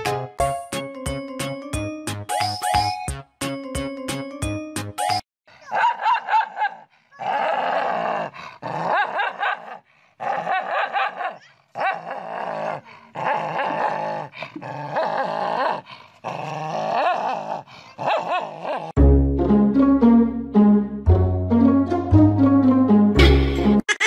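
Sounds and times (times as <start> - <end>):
dog growling and barking: 5.6 - 19.0
brass music: 19.0 - 23.8.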